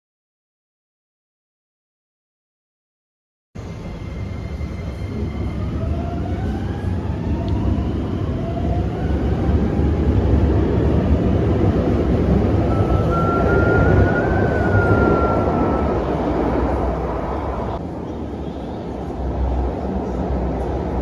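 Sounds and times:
train rumbling on track: 3.6 - 21.0.

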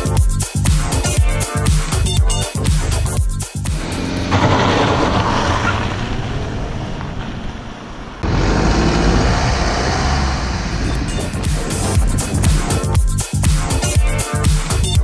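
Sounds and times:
car engine noise: 2.3 - 15.0
tyre and road rumble: 2.8 - 14.4.

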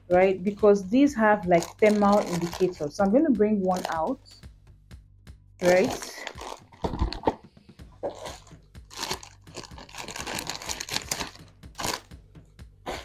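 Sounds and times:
plastic bags crinkling: 1.4 - 3.0, 3.7 - 4.1, 5.6 - 7.3, 8.1 - 12.1.

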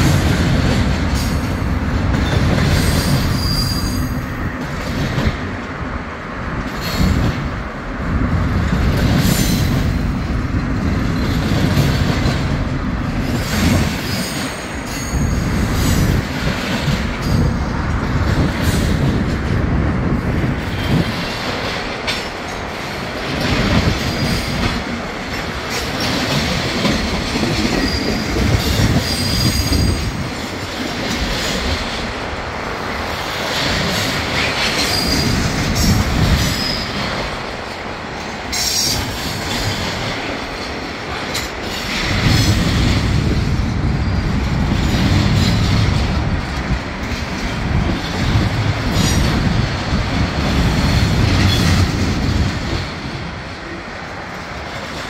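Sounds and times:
steel wheels clattering on rails: 0.0 - 5.6, 6.5 - 7.7, 8.3 - 55.0
high wheel squeals: 2.9 - 4.2, 34.8 - 35.4.

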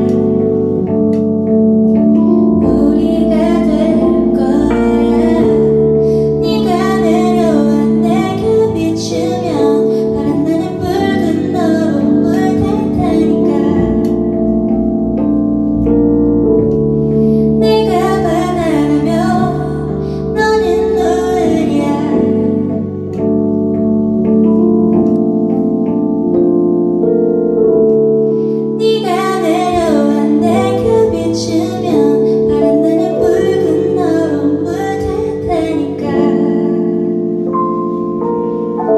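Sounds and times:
woman singing into a microphone: 0.0 - 14.7, 17.4 - 23.4, 28.8 - 37.2
held instrumental chords: 0.0 - 38.9.

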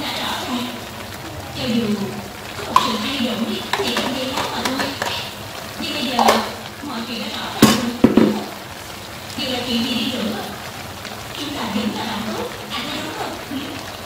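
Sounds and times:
food sizzling in a wok: 0.0 - 14.0
spoon clinking against pan: 2.7 - 5.3.

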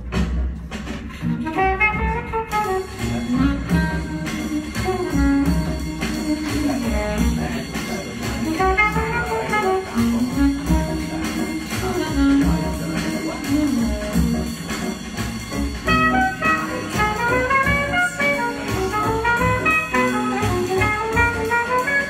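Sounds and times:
jazz music over loudspeakers: 0.0 - 22.0.

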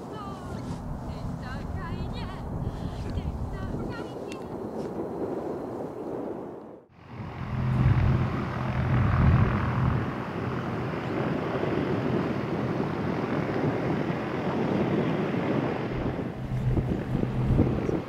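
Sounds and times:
propeller aircraft engine humming: 0.0 - 18.0
broad rushing noise: 6.8 - 18.0.

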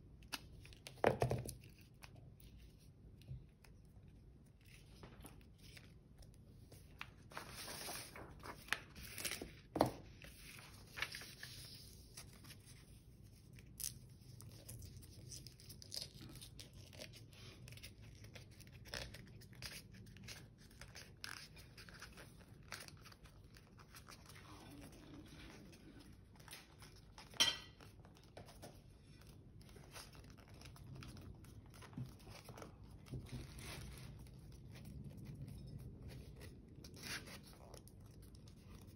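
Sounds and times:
paper rustling and crinkling: 0.2 - 38.9.

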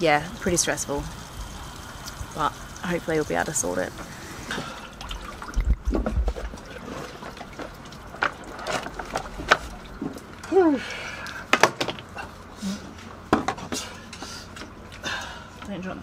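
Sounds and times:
water trickling and dripping: 0.0 - 12.6.

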